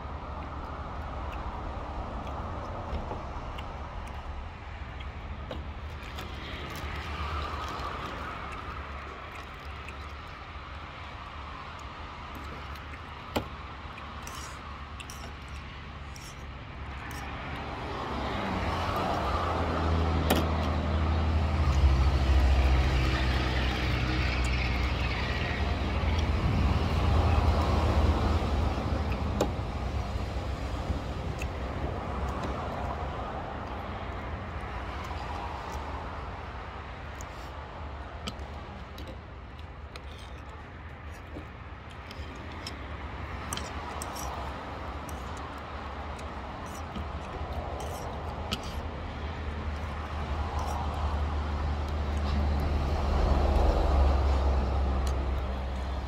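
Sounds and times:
vehicle engine passing by: 49.5 - 56.0.

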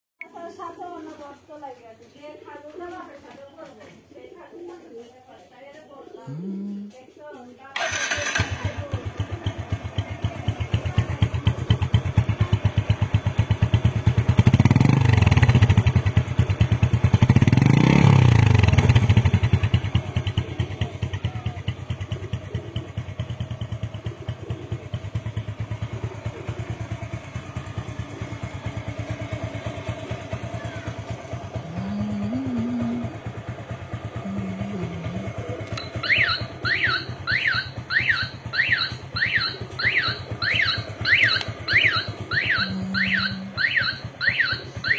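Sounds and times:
motorcycle engine idling and revving: 0.3 - 44.9.

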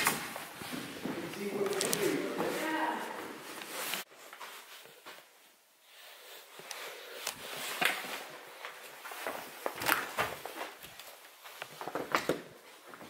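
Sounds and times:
footsteps on hard floor: 0.0 - 5.3
rustling noise: 0.0 - 13.0.

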